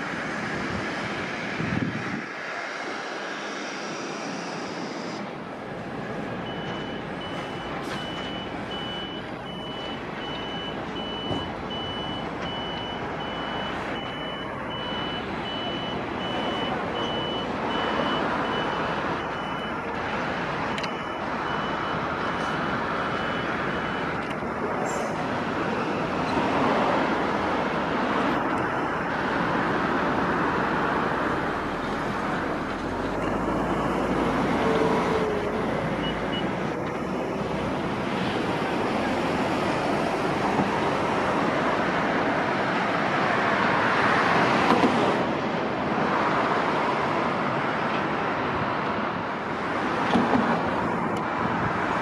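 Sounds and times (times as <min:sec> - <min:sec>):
continuous rushing noise: 0:00.0 - 0:52.0
reversing beeper beeping: 0:06.4 - 0:19.8, 0:20.7 - 0:24.2.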